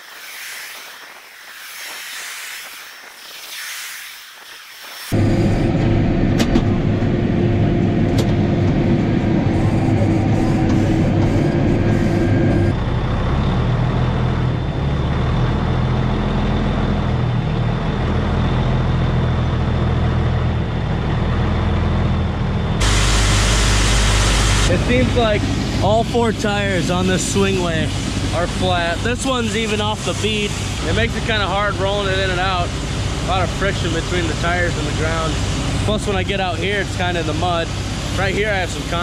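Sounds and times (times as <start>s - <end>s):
loud rushing machine noise: 0.0s - 13.8s, 22.6s - 39.0s
engine with high whine: 0.0s - 39.0s
tractor diesel engine running: 5.2s - 39.0s.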